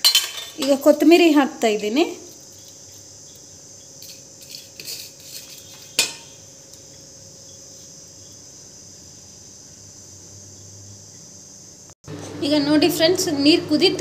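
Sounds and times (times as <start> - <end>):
steady high hiss: 0.0 - 12.0
utensil tapping metal pot: 4.0 - 6.8.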